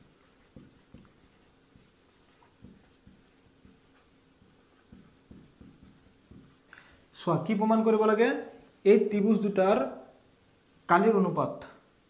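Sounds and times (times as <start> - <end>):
marker pen writing on whiteboard: 0.0 - 7.0.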